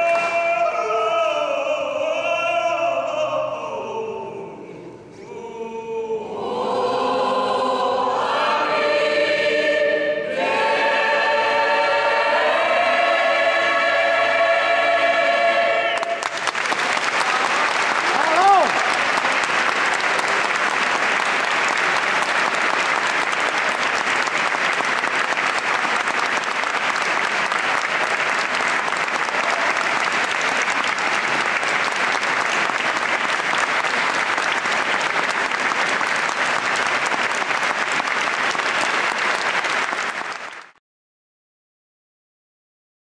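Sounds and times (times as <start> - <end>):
audience applauding: 16.0 - 40.8.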